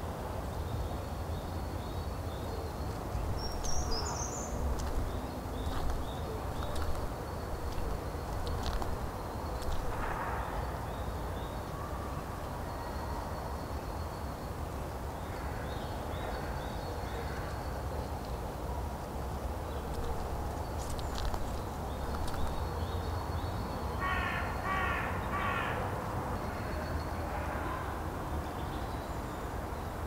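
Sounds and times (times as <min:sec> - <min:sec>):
steady low rumble: 0:03.0 - 0:10.7
crow cawing: 0:24.0 - 0:25.9.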